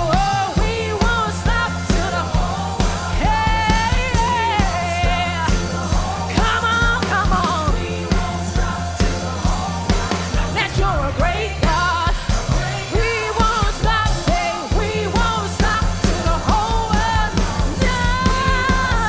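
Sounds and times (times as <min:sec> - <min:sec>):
bass and beat accompaniment: 0:00.0 - 0:19.0
female backing singers: 0:00.0 - 0:19.0
woman singing lead: 0:00.0 - 0:19.0.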